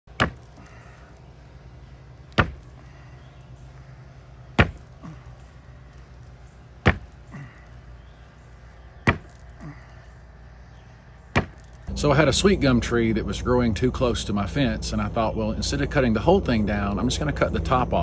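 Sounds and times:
fist punches on tree trunk: 0:00.2 - 0:00.5, 0:02.3 - 0:02.7, 0:04.6 - 0:04.9, 0:06.8 - 0:07.2, 0:09.0 - 0:09.4, 0:11.4 - 0:11.6.

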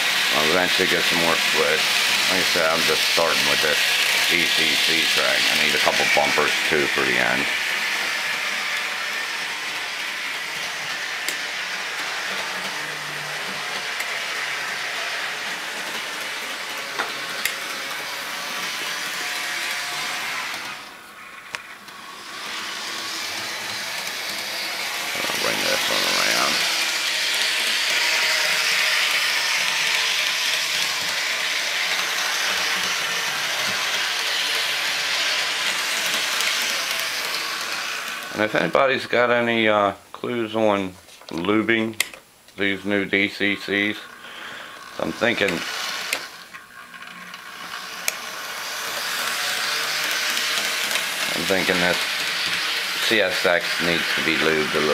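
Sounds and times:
model train motor whirring: 0:00.0 - 0:39.0, 0:42.7 - 0:54.9.

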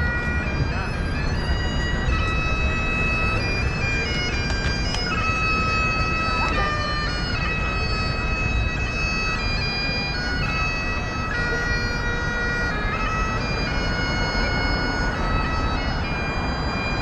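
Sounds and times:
low street noise: 0:00.0 - 0:17.0
wind instrument playing slow tune: 0:00.0 - 0:17.0.

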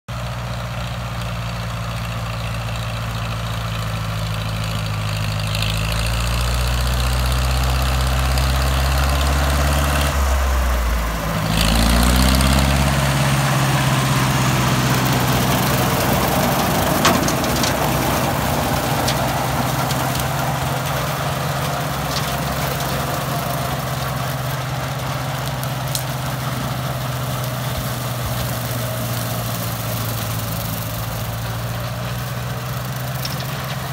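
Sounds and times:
tractor engine running: 0:00.1 - 0:33.9
rotary mower cutting grass: 0:00.2 - 0:33.9.

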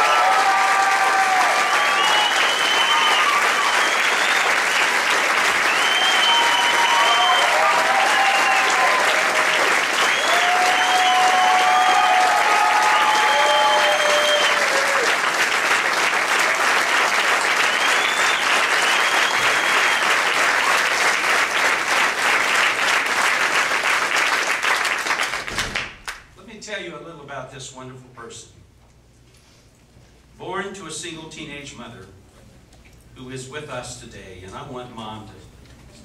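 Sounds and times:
crowd cheering: 0:00.0 - 0:25.8
crowd applauding: 0:00.0 - 0:26.3.

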